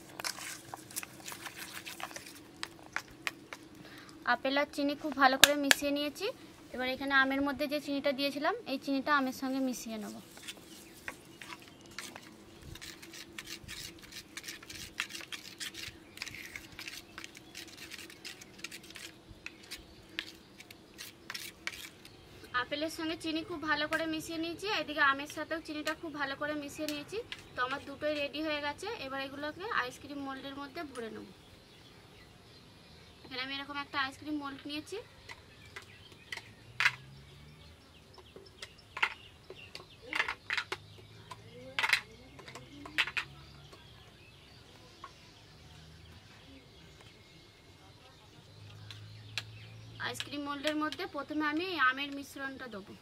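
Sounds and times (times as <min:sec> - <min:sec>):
spoon stirring in metal bowl: 0:00.0 - 0:03.7, 0:10.1 - 0:20.4.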